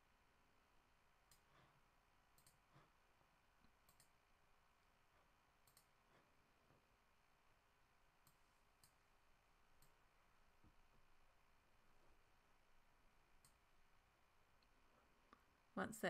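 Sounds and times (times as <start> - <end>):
keyboard typing clicks: 2.3 - 2.6, 3.6 - 4.2, 5.6 - 6.0.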